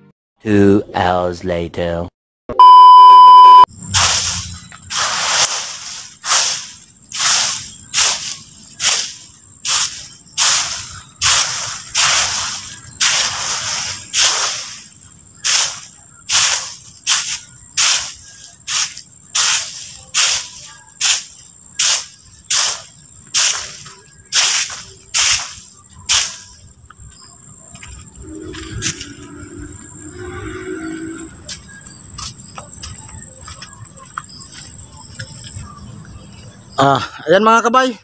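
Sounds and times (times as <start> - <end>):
stick broom sweeping leaves: 4.0 - 26.6.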